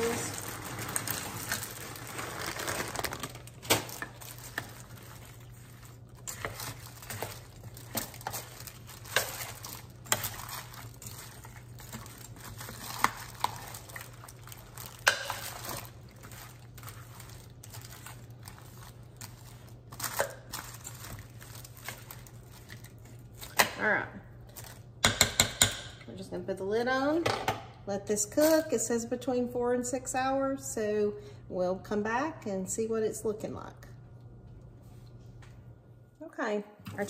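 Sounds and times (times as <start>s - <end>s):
frozen vegetables pouring from bag: 0.0s - 5.7s
plastic liner crinkling: 0.0s - 23.6s
metal spoon stirring vegetables: 3.8s - 23.6s.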